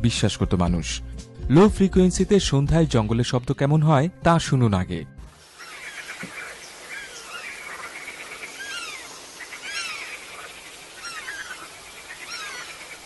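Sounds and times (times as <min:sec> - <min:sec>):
steady hiss: 0:05.3 - 0:13.0
birds chirping: 0:05.4 - 0:13.0.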